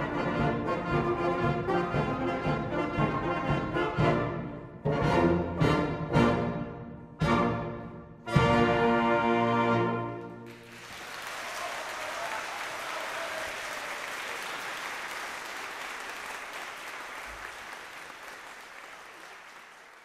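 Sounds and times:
audience applause: 0:10.4 - 0:20.0.

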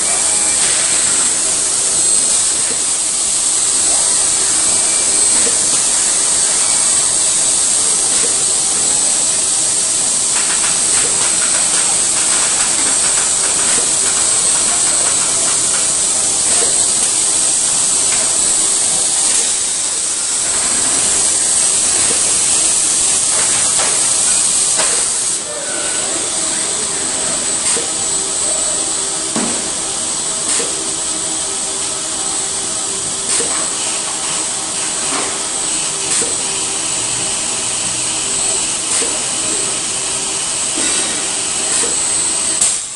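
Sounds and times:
faint machine hum: 0:00.0 - 0:42.9
loud steady hiss: 0:00.0 - 0:42.9
machine clicks and clanks: 0:05.4 - 0:19.7.

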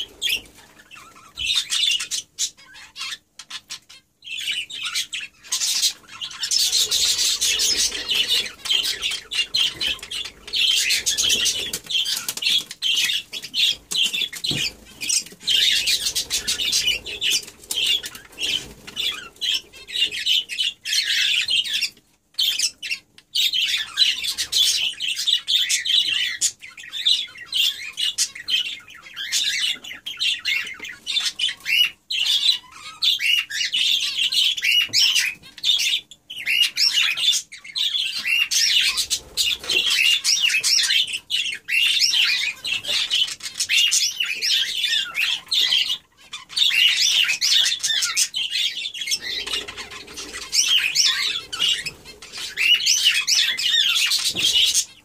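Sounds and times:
budgerigars chattering: 0:00.0 - 0:55.0.

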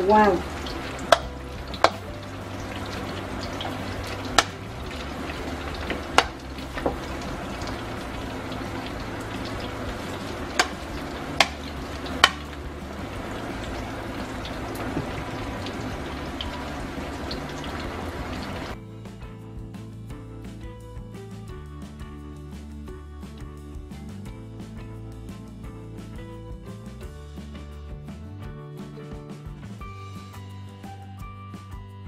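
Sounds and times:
cheese sizzling in oil: 0:00.2 - 0:18.8.

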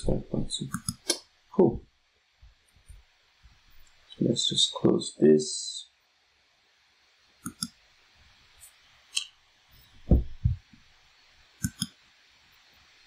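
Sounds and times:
computer mouse clicks: 0:00.7 - 0:01.2, 0:07.4 - 0:07.8, 0:11.6 - 0:12.0
low thud: 0:10.0 - 0:10.6.

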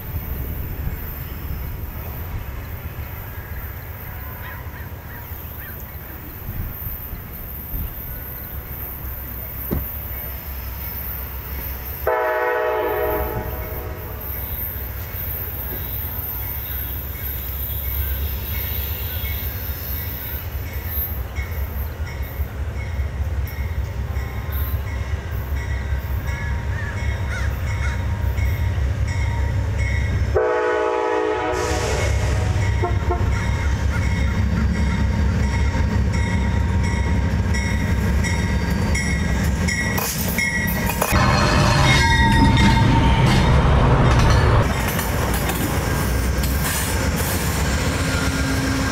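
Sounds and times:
diesel locomotive rumble: 0:00.0 - 0:48.9
train horn blast: 0:12.0 - 0:14.4, 0:30.2 - 0:33.7.

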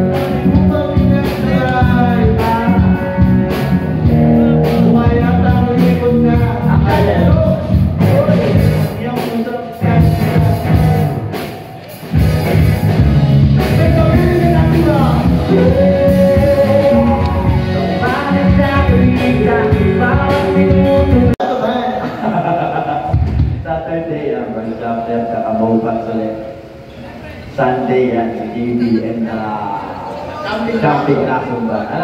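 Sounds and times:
man singing: 0:00.0 - 0:11.3, 0:13.6 - 0:22.1
live rock band playing: 0:00.0 - 0:21.4.

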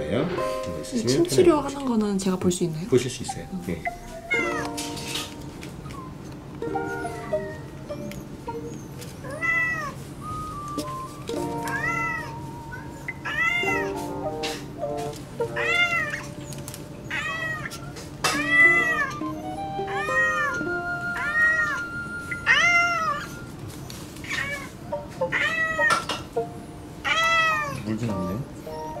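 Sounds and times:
light background music: 0:00.0 - 0:17.3, 0:18.4 - 0:27.0, 0:27.8 - 0:29.0
cat meowing: 0:09.3 - 0:11.0, 0:11.7 - 0:13.9, 0:15.6 - 0:16.3, 0:17.1 - 0:23.5, 0:24.2 - 0:26.1, 0:27.0 - 0:28.4.

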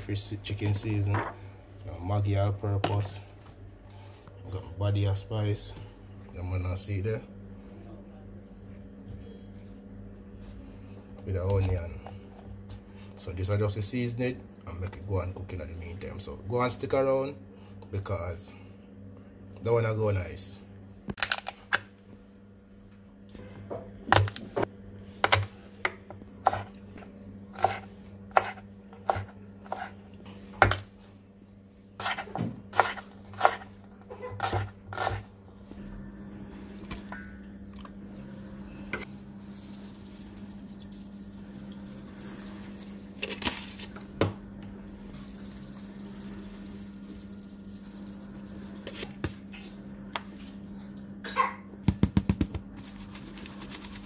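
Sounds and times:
steady low hum: 0:00.0 - 0:54.0
knife chopping on wooden board: 0:27.6 - 0:29.9, 0:32.0 - 0:33.6, 0:34.4 - 0:35.2.

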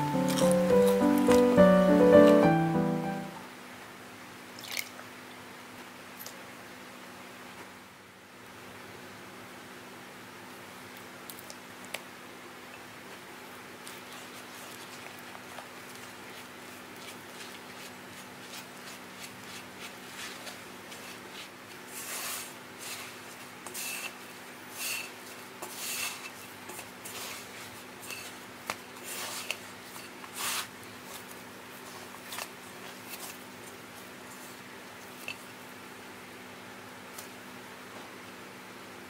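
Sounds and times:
spatula stirring flour: 0:13.7 - 0:35.4.

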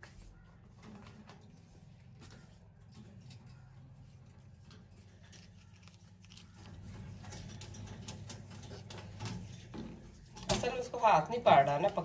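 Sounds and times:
parrot beak crunching food: 0:05.0 - 0:08.2.

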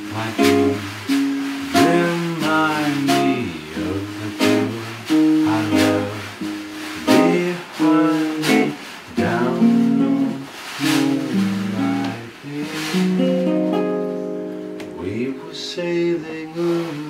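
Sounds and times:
snare drum with brushes: 0:00.0 - 0:14.2, 0:14.9 - 0:17.0
accordion chords: 0:00.0 - 0:15.9
guitar strummed in chords: 0:00.0 - 0:17.0.

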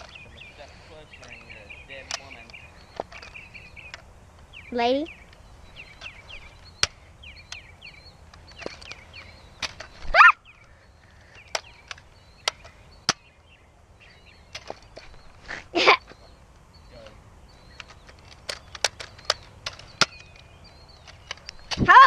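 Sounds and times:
small birds chirping: 0:00.0 - 0:22.0
sharp plastic clicks: 0:01.4 - 0:03.3, 0:17.8 - 0:21.9.

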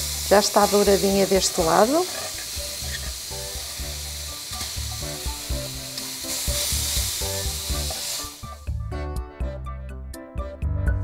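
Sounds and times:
fruit sizzling in caramel: 0:00.0 - 0:08.6.

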